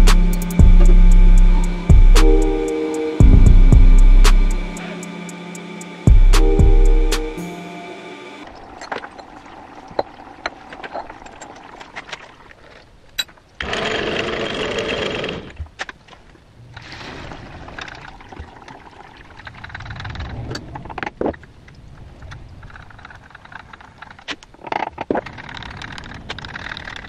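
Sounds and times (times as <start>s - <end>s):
loud rushing hiss: 0.0s - 8.4s
machinery humming: 0.0s - 10.4s.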